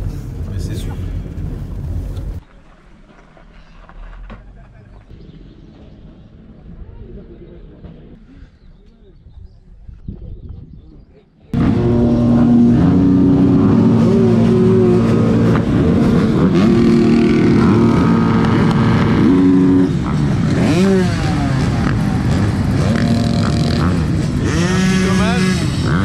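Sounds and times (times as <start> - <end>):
engine throttle blips: 0.0 - 8.2, 11.5 - 26.0
motocross bike engines running: 11.6 - 26.0.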